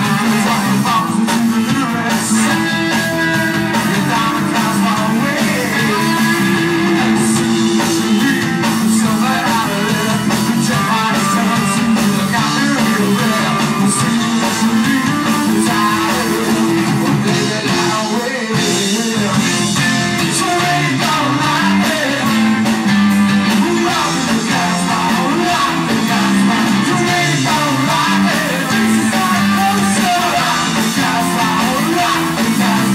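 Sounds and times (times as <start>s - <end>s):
drum kit: 0.0s - 32.9s
electric guitars: 0.0s - 32.9s
person singing: 0.0s - 32.9s.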